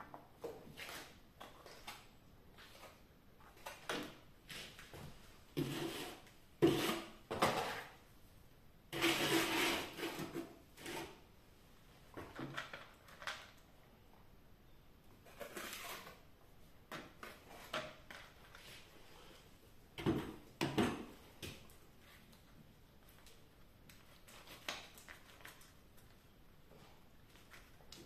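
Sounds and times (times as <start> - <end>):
plastering knife scraping plaster: 5.6 - 8.0, 8.9 - 11.3, 15.2 - 16.3.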